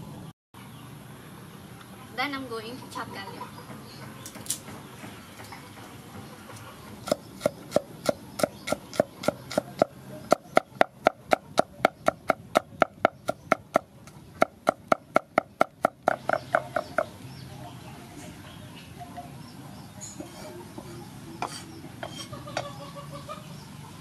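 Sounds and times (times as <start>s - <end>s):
cleaver chopping on wooden board: 7.0s - 17.1s.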